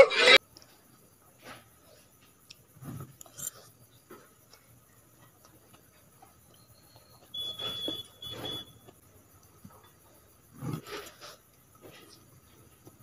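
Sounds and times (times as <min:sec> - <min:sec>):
thin high whistle: 0:06.5 - 0:08.9.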